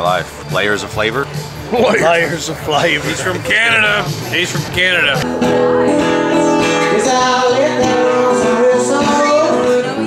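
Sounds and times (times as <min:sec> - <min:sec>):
acoustic guitar strumming: 0:01.3 - 0:10.0
man singing: 0:06.7 - 0:10.0.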